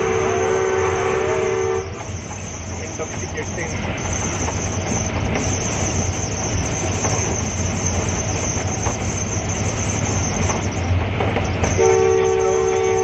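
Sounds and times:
locomotive horn chord: 0.0 - 2.0, 11.8 - 13.0
locomotive engine and wheels rumble: 0.0 - 13.0.

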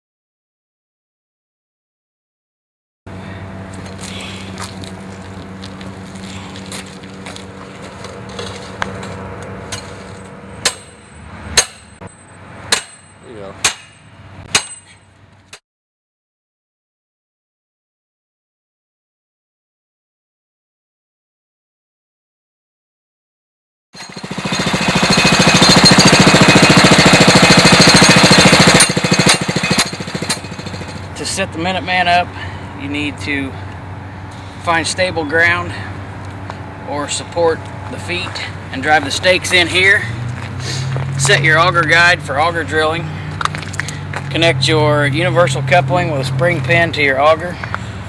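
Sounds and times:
hammer striking metal stake: 9.7 - 15.1, 24.0 - 31.1
drill rig engine pulsing: 24.0 - 32.8.

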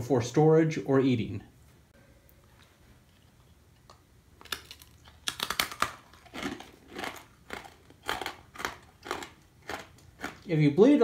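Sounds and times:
crunchy chewing of hard cracker: 3.3 - 10.5.

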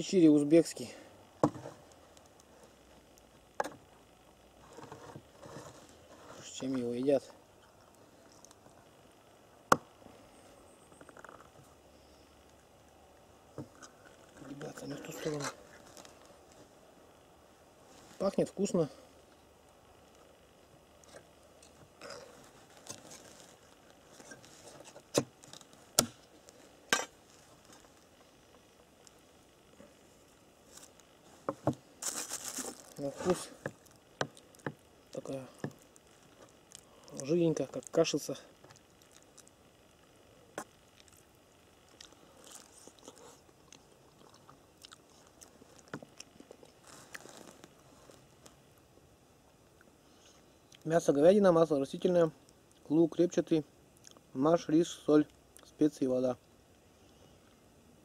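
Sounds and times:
faint chewing: 7.6 - 8.9, 32.0 - 39.7, 40.5 - 48.9, 54.0 - 54.3.

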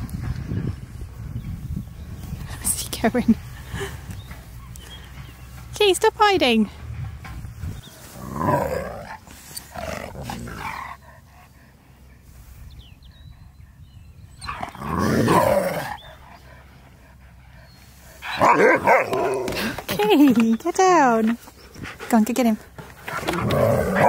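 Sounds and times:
huskies vocalising: 8.0 - 12.5, 14.3 - 24.0.

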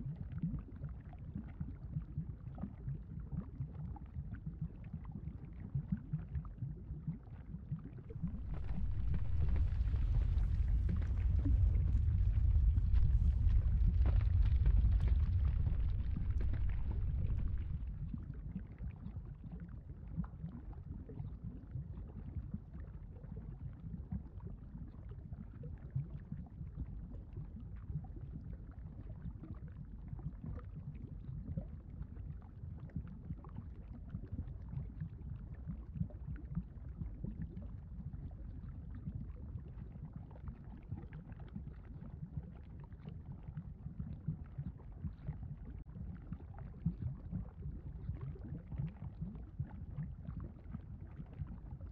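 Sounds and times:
lava bubbling rumble: 0.0 - 51.9
faint crackles: 8.1 - 19.0.

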